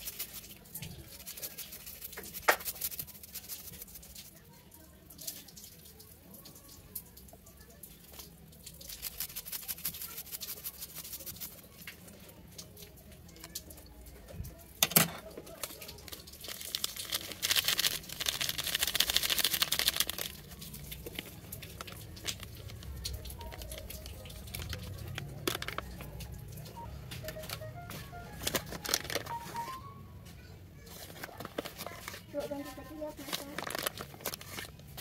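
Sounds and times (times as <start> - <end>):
foil sachet tearing and crinkling: 0.0 - 4.4, 8.1 - 12.0, 15.5 - 27.5, 28.3 - 29.7, 30.9 - 35.0.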